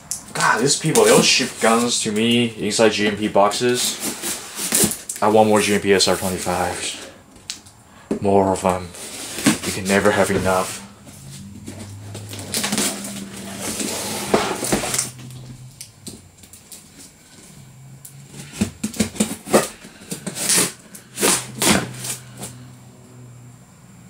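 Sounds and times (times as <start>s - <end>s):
cardboard ripping: 3.7s - 5.4s, 9.0s - 15.6s, 18.3s - 22.6s
cardboard box scraping: 3.8s - 5.0s, 8.9s - 15.7s, 18.3s - 22.6s
low hum: 8.9s - 24.0s.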